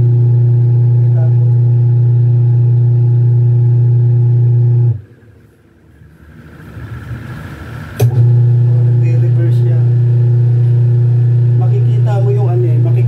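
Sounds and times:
washing machine motor humming: 0.0s - 13.0s.

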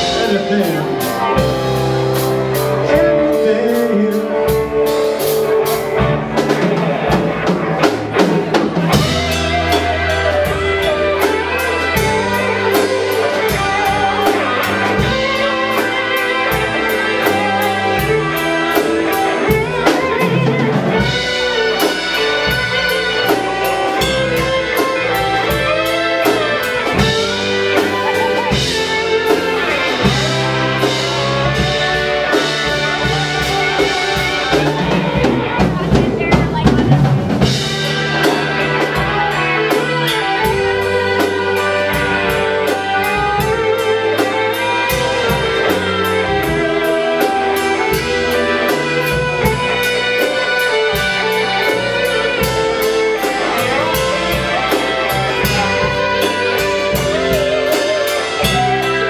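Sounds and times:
drum kit: 0.0s - 59.0s
electric bass: 0.0s - 59.0s
electric guitar lead: 0.0s - 59.0s.

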